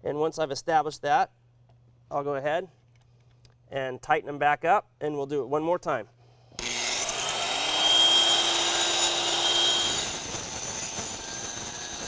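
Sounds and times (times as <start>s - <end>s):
electric concrete saw cutting: 6.6s - 12.0s.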